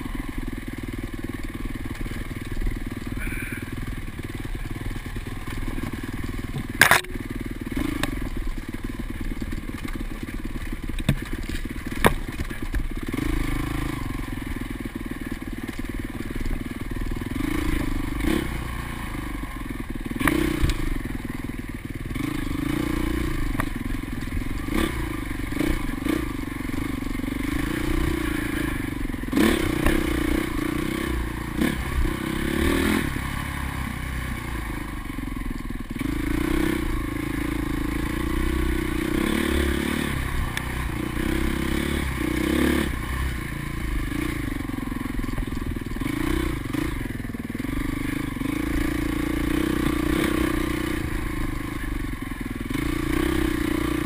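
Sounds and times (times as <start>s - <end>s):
dirt bike engine running: 0.0s - 54.0s
bike knocks and rattles: 4.8s - 13.2s.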